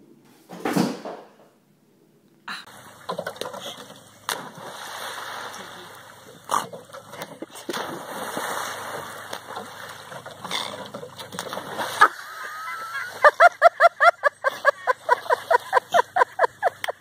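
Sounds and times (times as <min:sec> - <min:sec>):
dogs splashing in water: 0:02.7 - 0:13.3.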